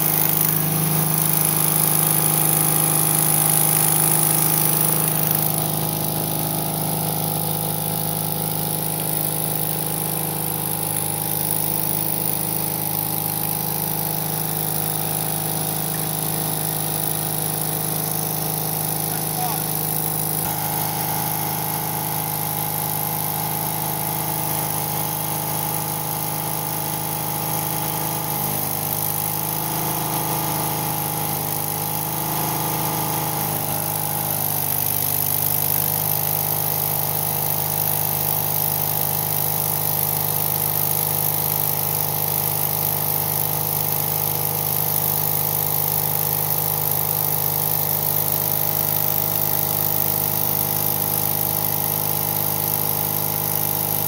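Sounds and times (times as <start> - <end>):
welding arc crackling hiss: 0.0 - 32.3
welder engine running: 0.0 - 54.0.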